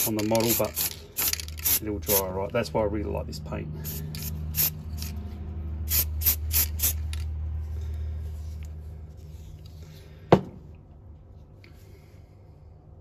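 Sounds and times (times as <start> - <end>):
aerosol spray hissing bursts: 3.9 - 4.8, 5.9 - 7.0.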